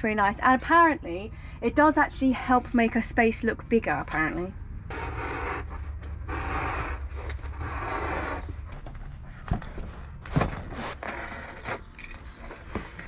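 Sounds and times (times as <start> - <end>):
knife scraping through vinyl: 4.9 - 8.6.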